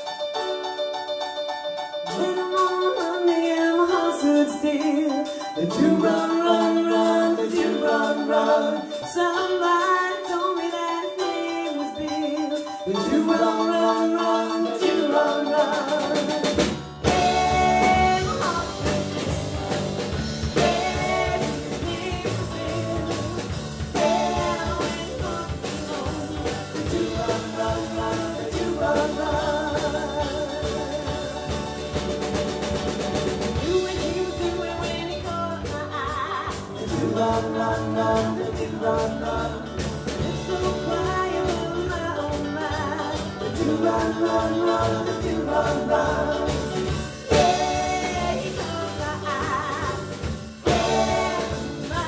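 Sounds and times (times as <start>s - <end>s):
drum kit: 0.0s - 52.0s
keyboard: 0.0s - 52.0s
electric guitar: 8.7s - 52.0s
electric bass: 16.2s - 52.0s.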